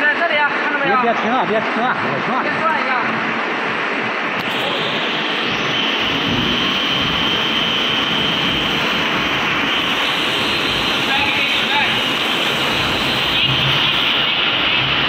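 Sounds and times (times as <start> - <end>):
veneer lathe machinery roar: 1.1 - 15.0
thin high whine: 4.2 - 15.0.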